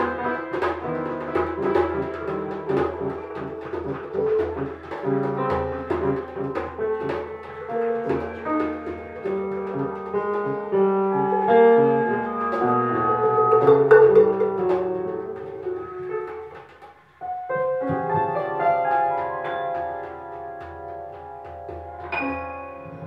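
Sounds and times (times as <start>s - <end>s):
held wind instrument notes: 0.0s - 16.9s
grand piano notes and chords: 0.0s - 23.0s
percussion strikes: 0.0s - 23.0s.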